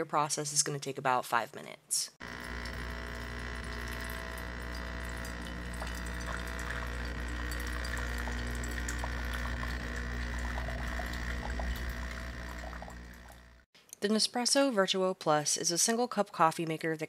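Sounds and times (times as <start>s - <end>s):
water splashing into a mug: 2.2s - 13.6s
coffee machine pump humming: 2.2s - 13.7s.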